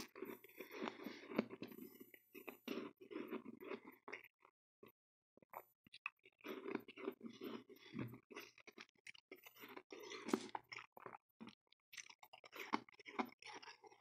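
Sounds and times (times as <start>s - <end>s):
chewing crunchy frost: 0.0s - 4.5s, 5.9s - 14.0s.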